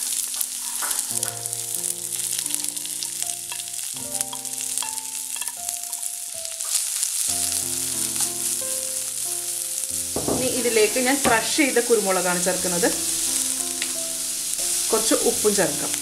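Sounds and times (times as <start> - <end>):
soft background music: 0.0 - 16.0
vegetables sizzling in hot oil: 0.0 - 16.0
spatula pushing food in wok: 0.2 - 1.1.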